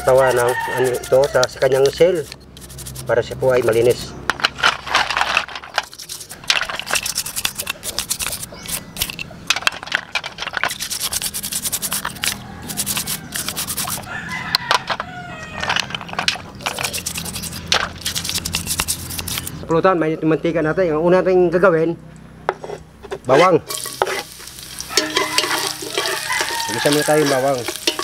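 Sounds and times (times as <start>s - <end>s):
rooster crowing: 0.0s - 2.0s, 12.0s - 16.0s, 24.6s - 28.0s
toothbrush scrubbing shells in water: 0.0s - 3.8s, 5.8s - 9.1s, 10.6s - 14.1s, 16.6s - 19.6s, 23.7s - 28.0s.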